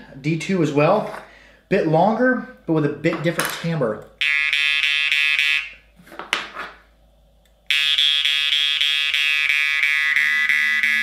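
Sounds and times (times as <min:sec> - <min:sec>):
jaw harp buzzing drone: 0:04.2 - 0:05.8, 0:07.7 - 0:11.0.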